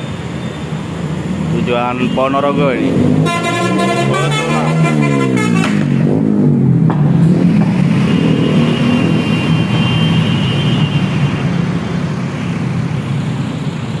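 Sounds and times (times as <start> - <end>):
bus diesel engine running: 3.2 - 6.0.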